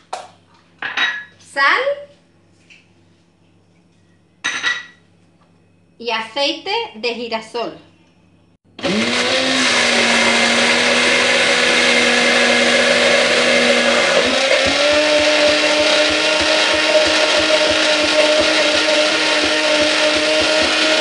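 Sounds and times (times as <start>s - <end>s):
immersion blender running: 8.8s - 21.0s.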